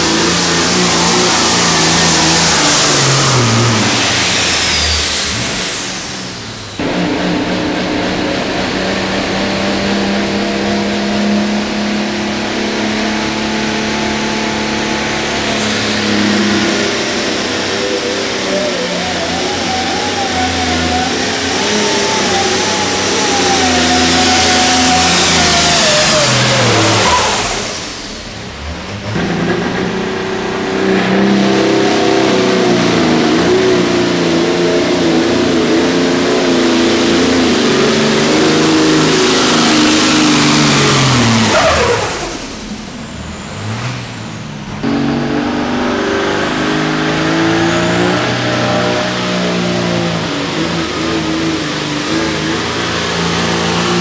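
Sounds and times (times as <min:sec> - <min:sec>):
diesel tractor engine at full throttle: 0:00.0 - 0:54.0.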